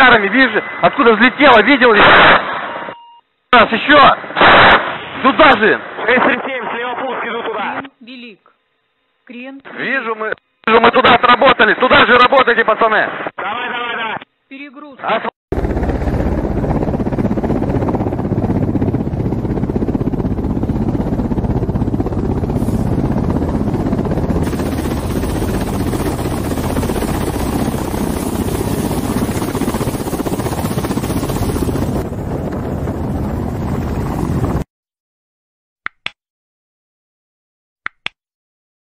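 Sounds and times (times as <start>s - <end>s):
helicopter rotors and engines: 15.5s - 34.7s.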